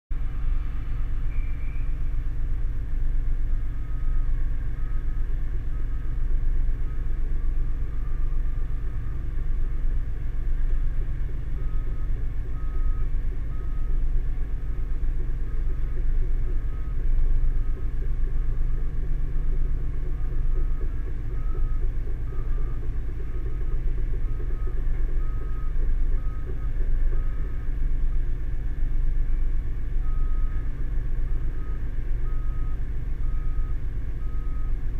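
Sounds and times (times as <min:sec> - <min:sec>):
excavator diesel engines rumbling: 0:00.1 - 0:34.9
travel alarm beeping: 0:03.7 - 0:06.2, 0:11.2 - 0:27.8, 0:30.0 - 0:30.7, 0:31.3 - 0:34.9.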